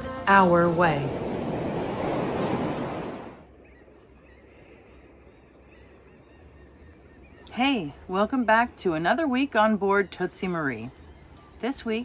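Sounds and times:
waves rushing and splashing: 0:00.0 - 0:03.5
faint calm water ambience: 0:00.0 - 0:12.0
wind: 0:00.0 - 0:12.0.

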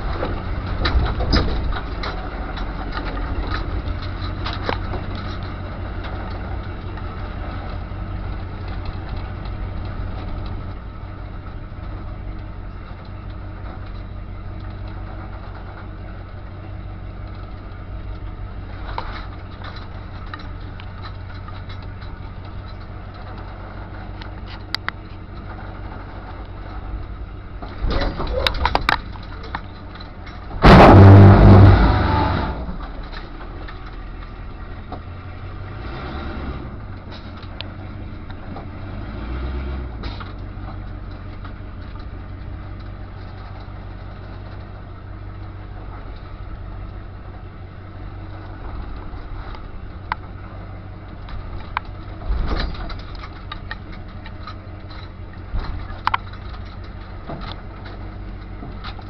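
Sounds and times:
short knocks and rattles: 0:00.0 - 0:07.2, 0:18.8 - 0:31.3, 0:51.3 - 0:59.0
car engine running: 0:00.0 - 0:59.0
loud crunch of metal on rocks: 0:18.8 - 0:34.1, 0:51.2 - 0:59.0.

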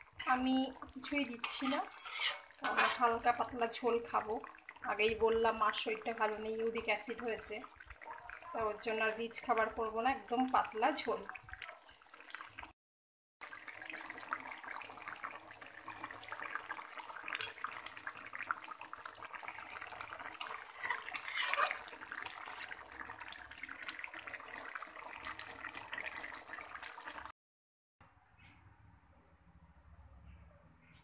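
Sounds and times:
curry boiling in a wok: 0:00.0 - 0:12.8, 0:13.4 - 0:27.3.

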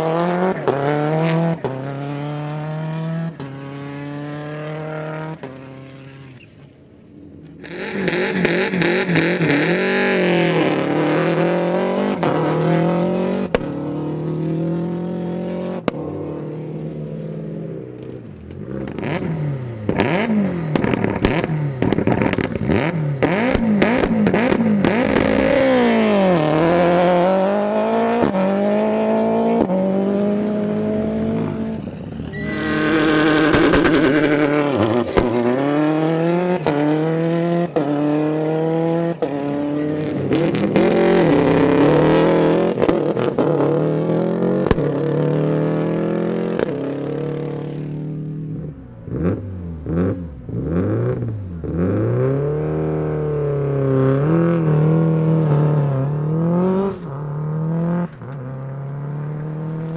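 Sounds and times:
gravel and tyre rush: 0:00.0 - 0:59.9
rally car engines revving: 0:00.0 - 0:59.9.

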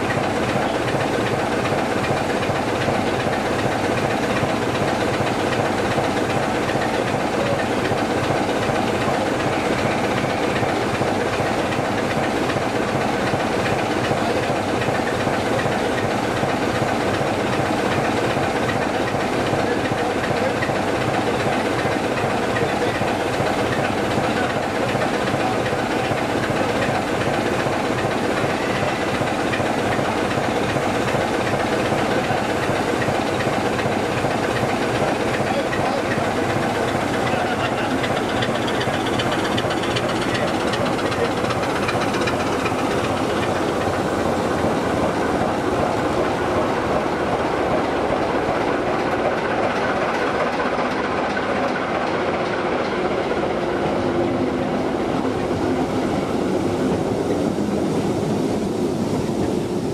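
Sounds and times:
diesel locomotive idling: 0:00.0 - 0:59.9.

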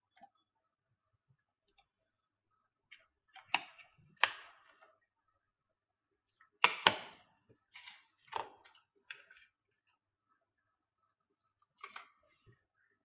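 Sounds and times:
plastic lid snapping shut: 0:06.6 - 0:07.2.

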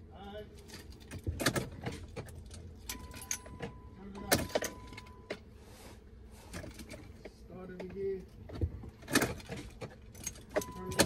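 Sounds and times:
car keys jangling in ignition: 0:00.5 - 0:05.4, 0:07.8 - 0:11.0.

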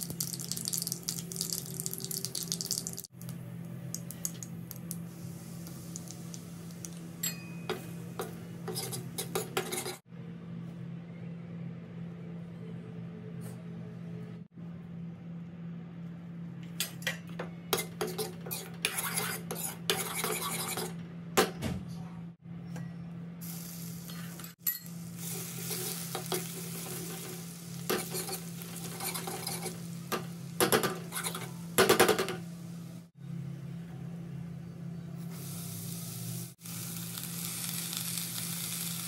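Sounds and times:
spices sizzling in hot oil: 0:00.0 - 0:03.1, 0:04.6 - 0:07.2, 0:23.4 - 0:31.8, 0:35.3 - 0:39.0.

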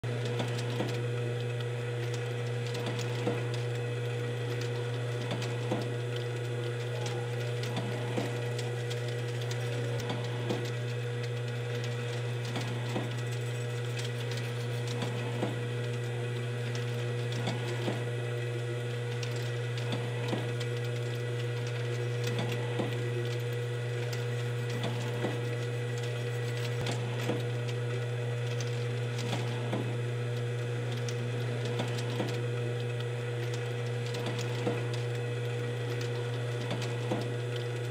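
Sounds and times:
machine motor hum: 0:00.0 - 0:37.9.

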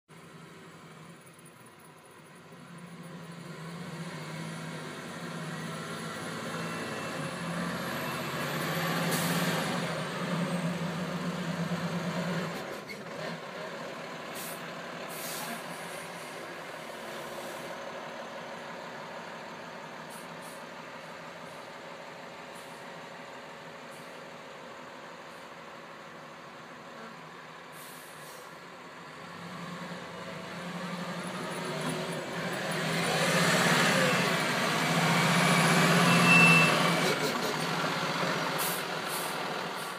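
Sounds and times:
truck diesel engine working hard: 0:02.6 - 0:39.9.

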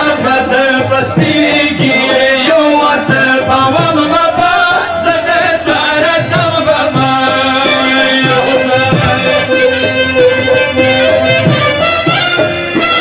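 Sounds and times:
chant-like singing: 0:00.0 - 0:09.7
music: 0:00.0 - 0:13.0.

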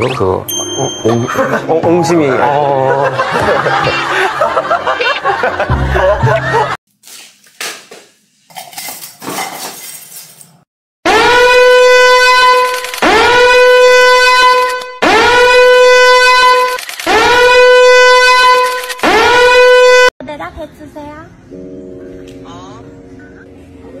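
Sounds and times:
loud buzzy horn blasts: 0:11.0 - 0:20.1.

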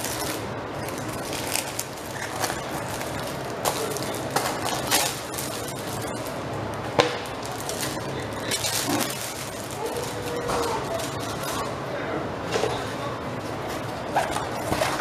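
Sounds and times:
plastic bag crinkling: 0:00.0 - 0:06.5, 0:07.2 - 0:11.7.

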